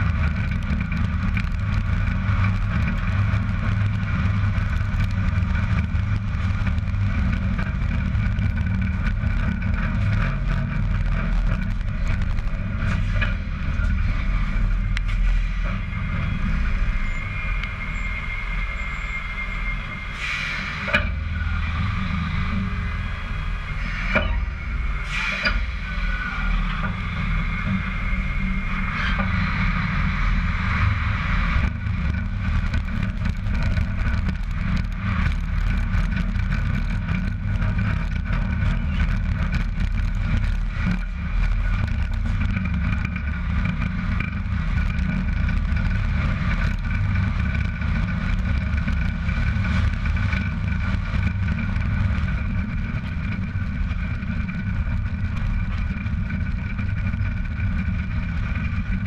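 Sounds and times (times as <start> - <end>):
truck tyre and wind rumble: 0.0 - 59.0
high whines: 3.9 - 35.2.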